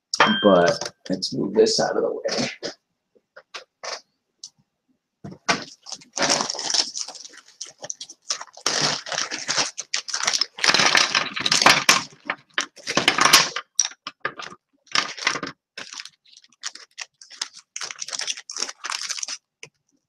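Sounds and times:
plastic pieces clacking on a table: 0:05.3 - 0:19.8.

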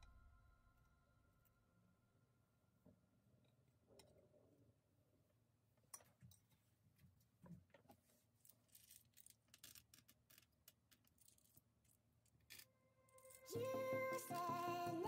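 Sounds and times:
music: 0:13.2 - 0:15.0.

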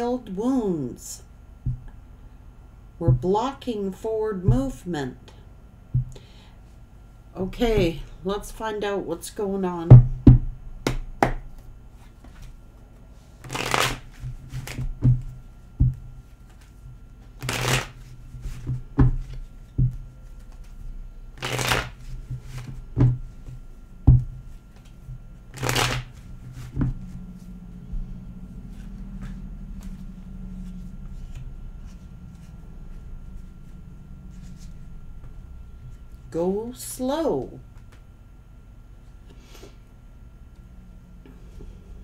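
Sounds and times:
cards being shuffled: 0:13.4 - 0:14.9, 0:16.3 - 0:19.4, 0:20.2 - 0:20.8, 0:21.4 - 0:22.8, 0:24.7 - 0:27.2.

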